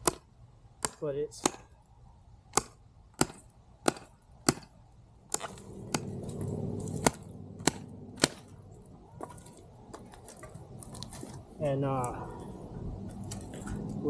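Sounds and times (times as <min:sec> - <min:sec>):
hatchet chopping wood: 0:00.0 - 0:01.7, 0:02.5 - 0:06.1, 0:06.9 - 0:08.5
steady background noise: 0:00.0 - 0:14.0.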